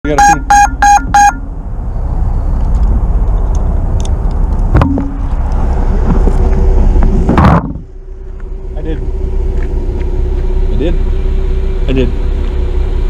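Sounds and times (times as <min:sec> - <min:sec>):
sharp knock: 0:04.7 - 0:05.2.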